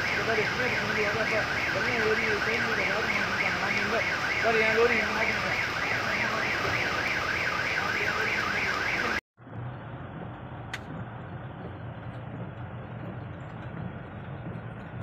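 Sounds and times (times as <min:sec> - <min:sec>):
electronic siren warbling: 0:00.0 - 0:09.2
heavy rain on car: 0:00.0 - 0:15.0
traffic: 0:00.0 - 0:15.0.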